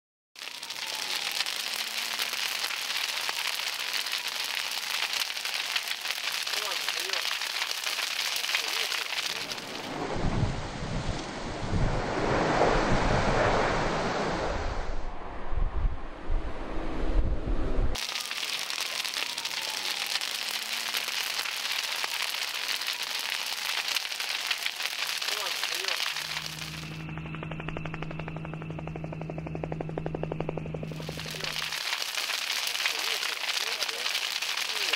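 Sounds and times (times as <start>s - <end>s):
fire crackling: 0.4s - 13.7s, 17.9s - 34.9s
wind buffeting microphone: 9.9s - 18.0s.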